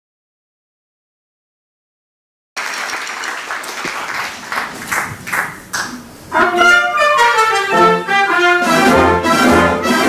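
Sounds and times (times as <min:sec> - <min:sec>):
audience applause: 0:02.6 - 0:06.1
wind band playing sustained chords: 0:06.2 - 0:10.0.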